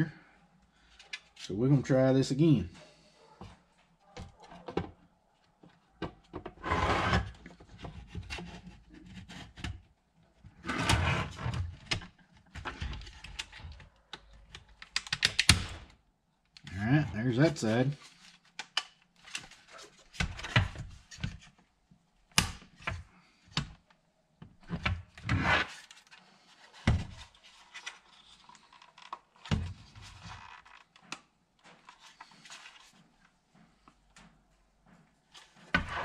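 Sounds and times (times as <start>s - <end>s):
plastic rubbing: 24.6s - 33.2s.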